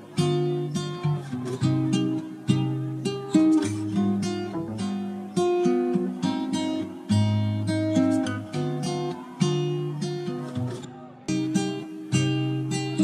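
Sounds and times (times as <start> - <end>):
acoustic guitar melody: 0.0 - 13.0.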